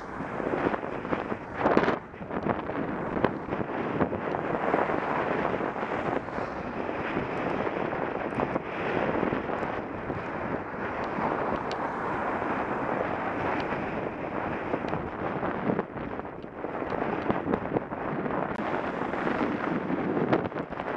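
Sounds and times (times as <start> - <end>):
motor traffic passing: 0.0 - 15.0
wind buffeting microphone: 0.0 - 20.9.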